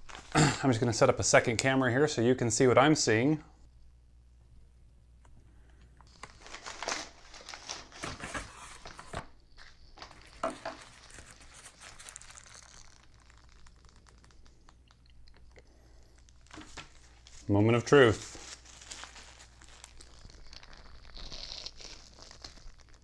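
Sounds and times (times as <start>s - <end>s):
paper bag crinkling and rustling: 0.0s - 0.4s, 6.1s - 15.0s, 15.7s - 23.0s.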